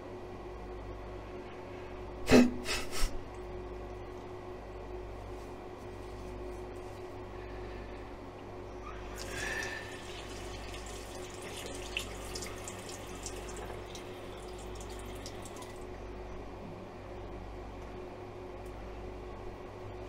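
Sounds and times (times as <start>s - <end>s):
steady low hum: 0.0s - 20.0s
tap water running into sink: 9.1s - 15.8s.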